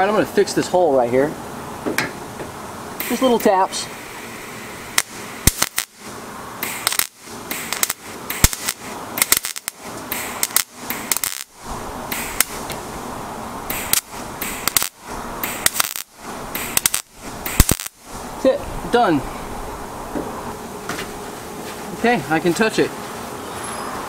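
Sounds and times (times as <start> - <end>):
welding arc crackling and popping: 3.0 - 19.2.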